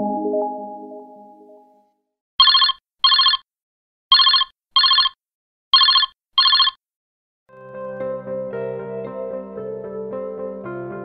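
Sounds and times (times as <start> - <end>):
telephone ringing: 2.4 - 3.4, 4.1 - 5.2, 5.8 - 6.8.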